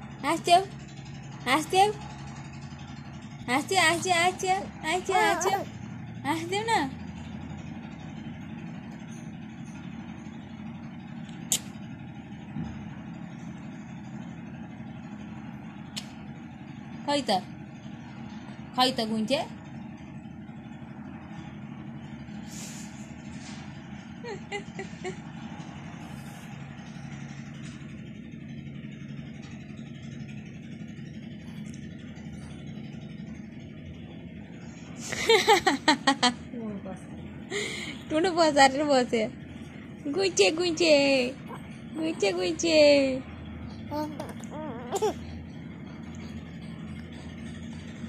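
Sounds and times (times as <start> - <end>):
low background hum: 0.0 - 48.0
sharp click: 11.4 - 11.8.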